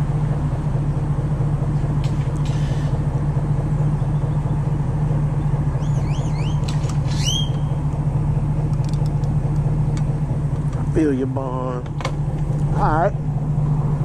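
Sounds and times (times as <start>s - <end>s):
low engine hum: 0.0s - 14.0s
birds chirping: 3.8s - 7.8s
rising whistle: 5.4s - 7.8s.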